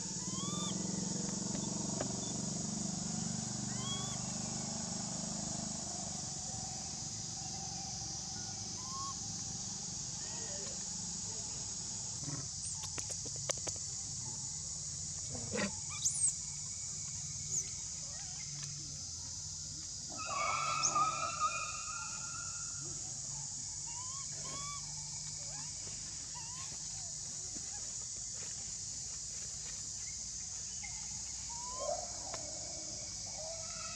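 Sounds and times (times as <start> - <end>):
steady high-pitched hiss: 0.0 - 33.9
pitched animal call: 20.1 - 22.6.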